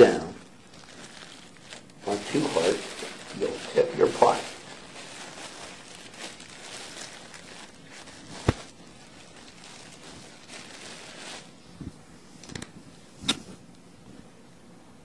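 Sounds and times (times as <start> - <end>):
bread and plastic crunching: 0.0 - 11.6.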